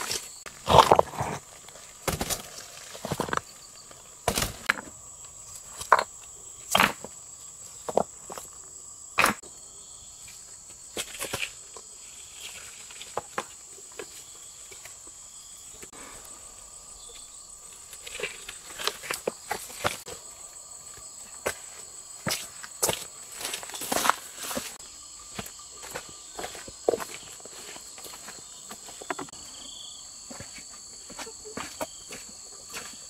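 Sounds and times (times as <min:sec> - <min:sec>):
knocks and scrapes: 0:00.0 - 0:03.5, 0:21.4 - 0:29.7
insects chirring: 0:00.0 - 0:33.0.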